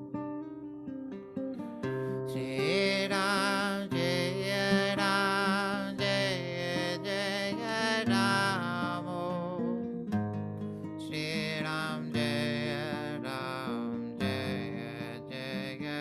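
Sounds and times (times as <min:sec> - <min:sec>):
strummed acoustic guitar: 0:00.0 - 0:16.0
man chanting: 0:02.4 - 0:09.6, 0:11.0 - 0:16.0.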